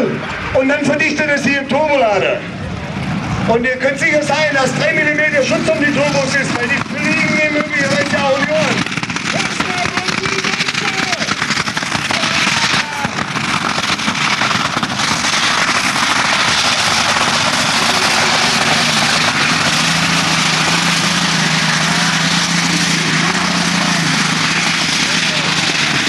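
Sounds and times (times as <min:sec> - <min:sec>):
tractor engine at full power: 0:00.0 - 0:26.0
low drone: 0:10.6 - 0:26.0.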